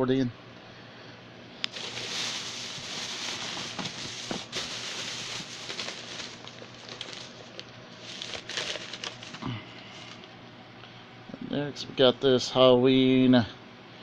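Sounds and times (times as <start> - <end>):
rummaging through plastic tote: 1.7 - 10.2.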